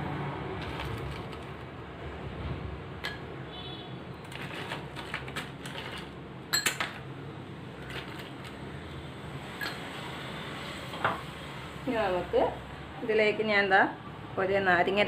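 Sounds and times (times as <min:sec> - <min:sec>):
ice cubes clinking in a glass: 0:04.2 - 0:07.0.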